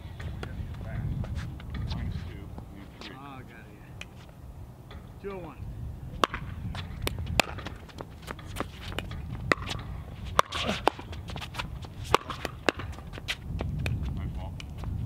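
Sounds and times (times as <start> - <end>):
footsteps on hard court: 6.2 - 15.0.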